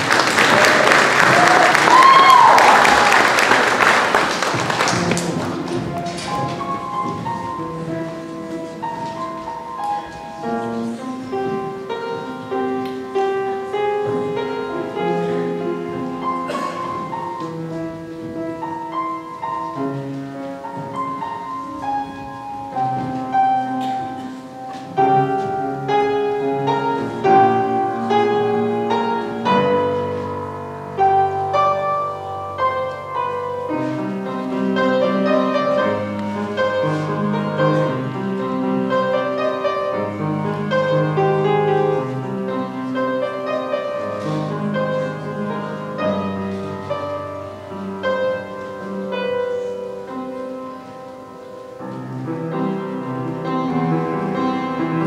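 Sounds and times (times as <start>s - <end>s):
upright piano playing: 0.0s - 55.0s.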